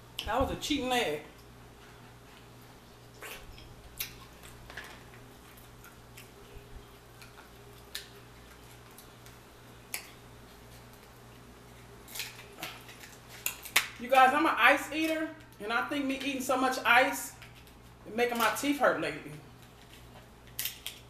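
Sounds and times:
crab shells cracking: 12.0s - 14.0s, 20.4s - 21.0s.

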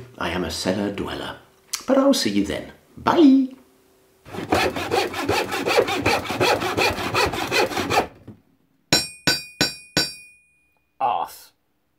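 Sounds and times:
saw cutting wood: 4.3s - 8.2s
sharp ringing strikes: 8.9s - 10.9s.

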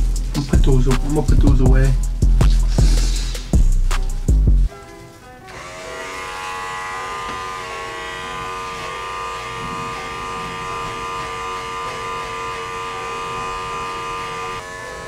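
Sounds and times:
electric hair clippers buzzing: 5.4s - 15.0s.

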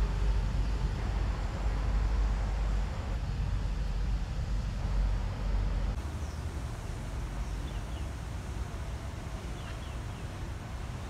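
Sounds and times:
steady background hiss: 0.0s - 11.0s
wind rumbling on microphone: 0.0s - 11.0s
faint bird chirps: 9.4s - 10.4s.

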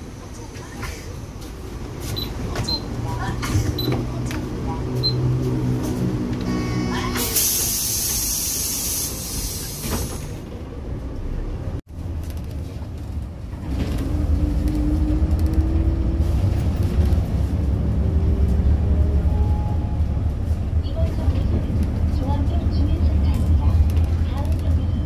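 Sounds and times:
bus engine pulling away: 0.0s - 24.8s
bus door air hiss: 7.2s - 10.4s.

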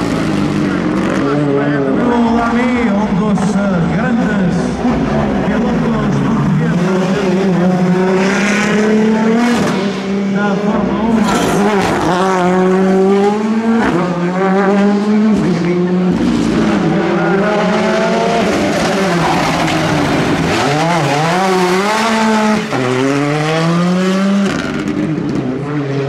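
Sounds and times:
rally car engines revving: 0.0s - 26.0s
tyre squeal: 11.1s - 12.1s.

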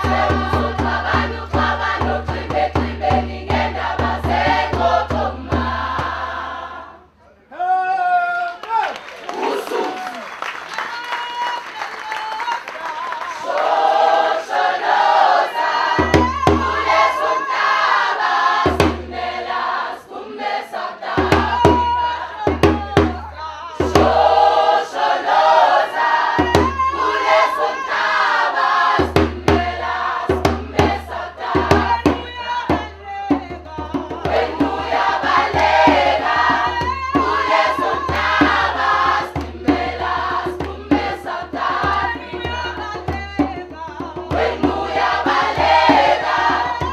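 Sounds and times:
choir singing: 0.0s - 7.1s, 9.3s - 10.2s, 13.1s - 46.9s
hand drum beating: 21.2s - 23.3s, 29.1s - 46.9s.

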